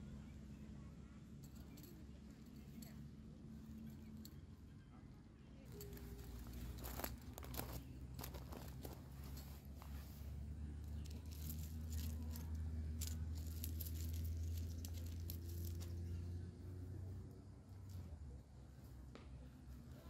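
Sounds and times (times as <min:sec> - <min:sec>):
steady low hum: 0:00.0 - 0:20.0
tent stake scraping in gravel: 0:05.7 - 0:16.0
footsteps on gravel: 0:05.8 - 0:10.3.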